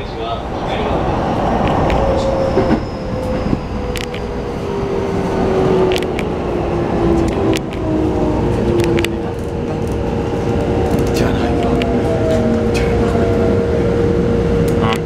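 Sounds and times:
train inverter whine: 0.0 - 15.0
wheels rumbling on rail: 0.0 - 15.0
sharp clicks: 3.9 - 4.2.

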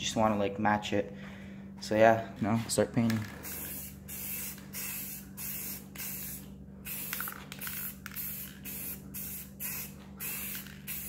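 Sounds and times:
aerosol spray can hissing: 3.2 - 11.0.

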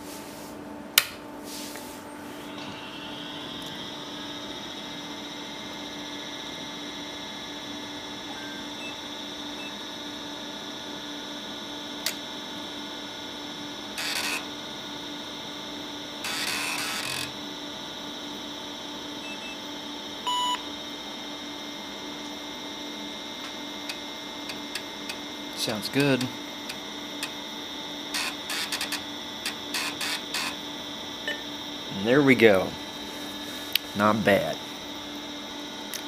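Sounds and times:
computer hum and whine: 0.0 - 36.0.

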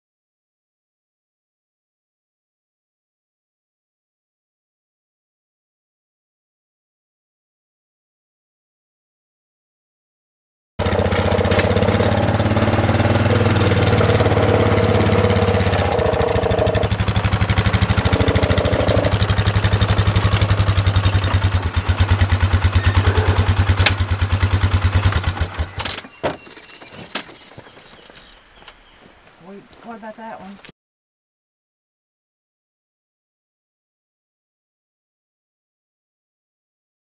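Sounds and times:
atv engine idling: 10.8 - 27.5.

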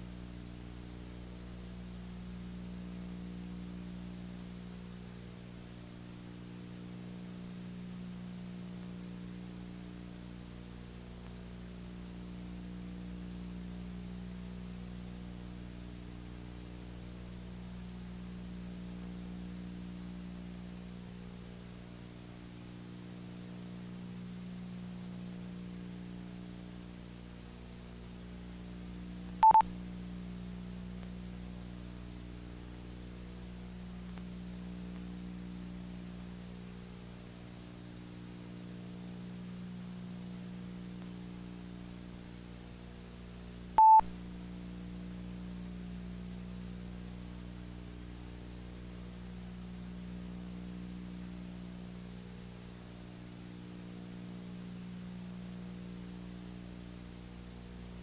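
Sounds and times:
low hum with hiss: 0.0 - 58.0
short loud beep: 29.4 - 29.6, 43.8 - 44.1.

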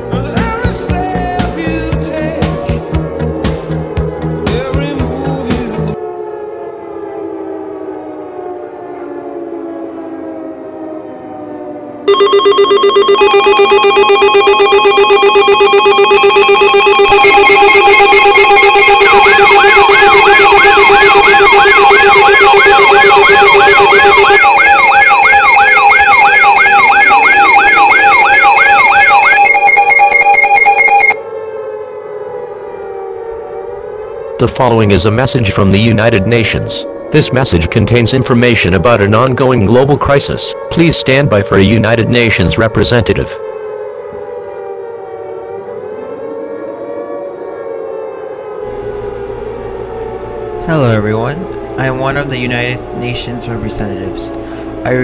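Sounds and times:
slow wailing siren: 0.0 - 55.0
fast rising whoop siren: 2.6 - 37.7, 40.1 - 55.0
steady high alarm tones: 12.1 - 31.2, 48.6 - 55.0
low hum: 48.7 - 55.0.

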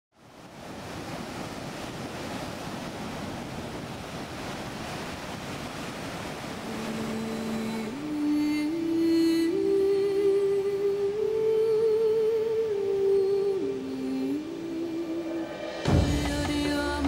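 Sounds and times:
steady rushing noise: 14.4 - 17.0.

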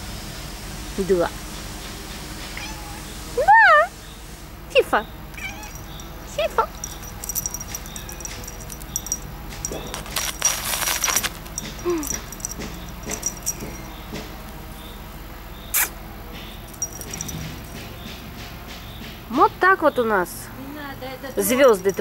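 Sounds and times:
soft ticks and rustles: 6.7 - 14.2
cat scrambling through grass: 9.8 - 11.8.

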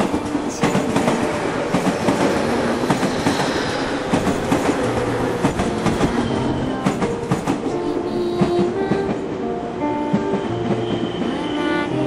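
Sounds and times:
train wheels clattering over rail joints: 0.0 - 9.2
train rushing noise: 0.0 - 12.0.

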